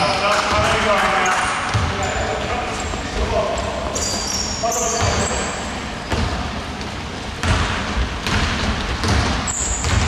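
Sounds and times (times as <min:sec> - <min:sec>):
sneaker squeak: 0:00.0 - 0:07.6, 0:09.0 - 0:10.0
basketball bouncing on wooden floor: 0:01.6 - 0:02.2, 0:06.1 - 0:10.0.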